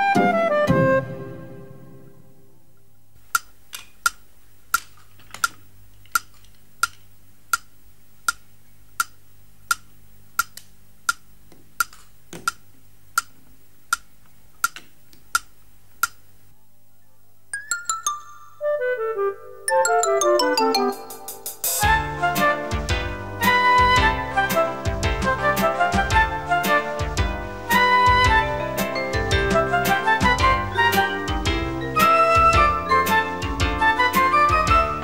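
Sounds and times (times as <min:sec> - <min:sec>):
clock ticking: 0:03.3 - 0:08.4, 0:09.0 - 0:13.3.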